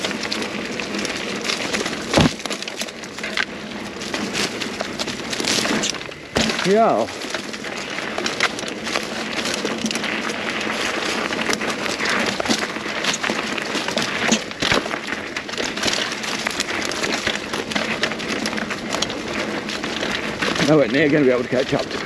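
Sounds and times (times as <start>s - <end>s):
bike rattling over bumps: 0.0s - 22.0s
bike tyres rolling over dirt: 0.0s - 22.0s.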